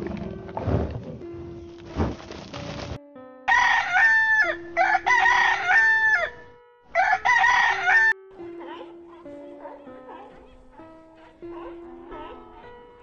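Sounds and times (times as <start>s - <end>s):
rooster crowing: 3.5s - 8.2s.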